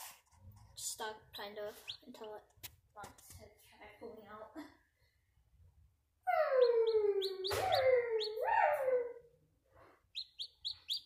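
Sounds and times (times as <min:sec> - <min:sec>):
chick peeping: 0:00.8 - 0:02.4, 0:06.3 - 0:09.0, 0:10.1 - 0:11.0.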